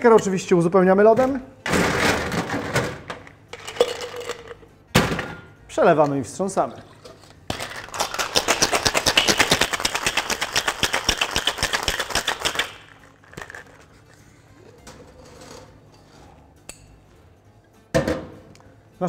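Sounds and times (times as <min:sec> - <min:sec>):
ice rattling in cocktail shaker: 0:03.6 - 0:04.6, 0:07.5 - 0:13.9.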